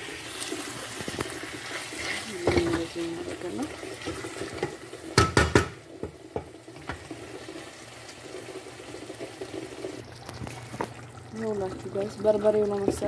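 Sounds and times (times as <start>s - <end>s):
spoon knocking against pot: 4.6s - 7.0s.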